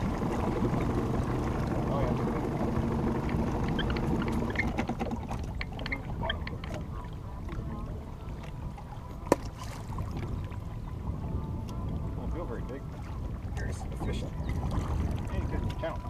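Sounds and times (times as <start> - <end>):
clicks and knocks of line hauling: 0.0 - 7.8
water and wind noise: 0.0 - 16.0.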